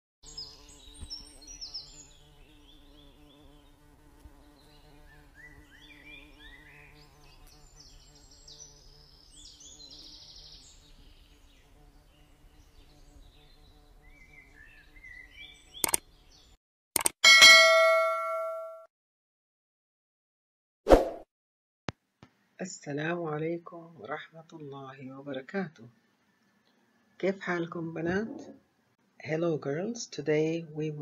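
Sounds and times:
sharp click: 15.8s - 16.0s, 17.0s - 17.2s.

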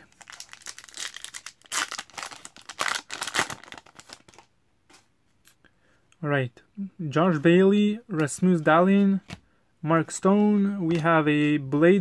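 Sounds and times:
foil wrapper tearing and crinkling: 0.0s - 4.4s.

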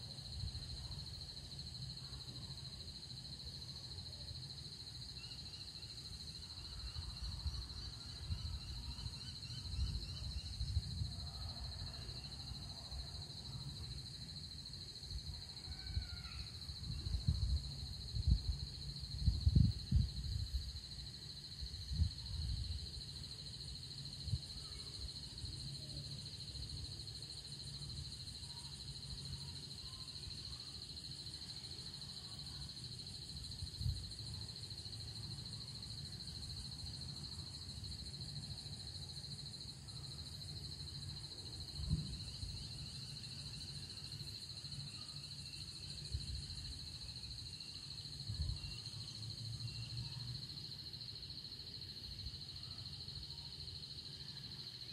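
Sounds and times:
insect chorus trilling: 0.0s - 54.9s
wind buffeting microphone: 16.9s - 20.7s.

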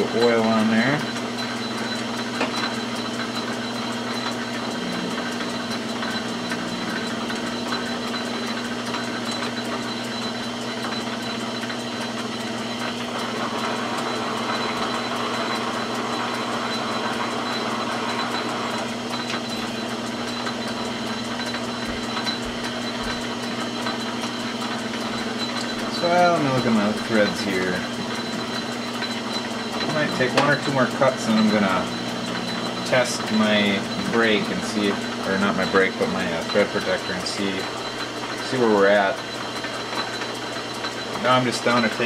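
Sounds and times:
metal lathe humming: 0.0s - 42.0s.

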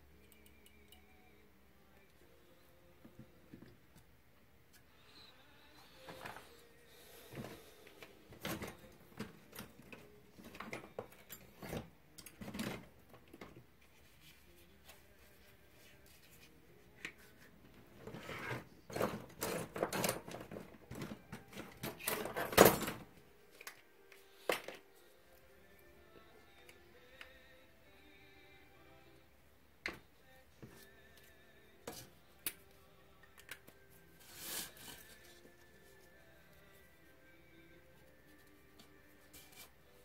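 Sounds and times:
tools clicking and knocking: 18.9s - 23.0s.

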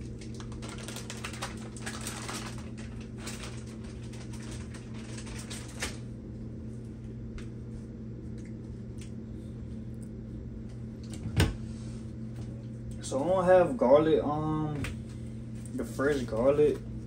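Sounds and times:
plastic bag crinkling: 0.0s - 6.1s
steady low hum: 0.0s - 17.0s.

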